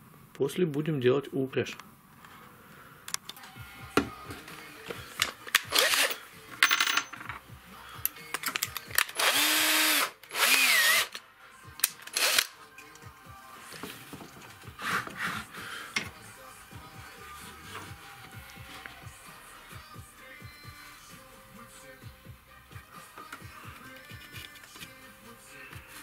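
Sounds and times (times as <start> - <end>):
electric drill drilling wood: 5.7 - 6.2, 9.2 - 11.1, 12.2 - 12.4.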